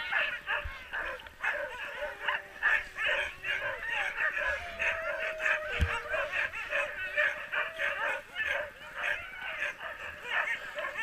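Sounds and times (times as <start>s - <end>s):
dogs whining: 0.0s - 11.0s
sled dogs barking and yipping: 0.0s - 11.0s
dull thump: 5.7s - 6.0s.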